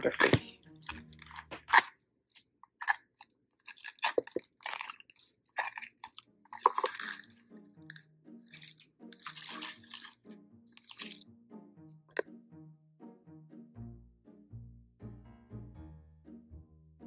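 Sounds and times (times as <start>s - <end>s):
scoop scraping pineapple flesh: 0.0s - 11.2s.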